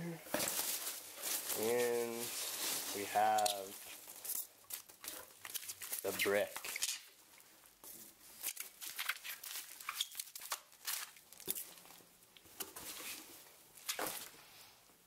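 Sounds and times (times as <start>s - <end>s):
packing peanuts rustling: 0.3s - 7.2s, 8.3s - 12.0s
bubble wrap crinkling: 0.3s - 14.4s.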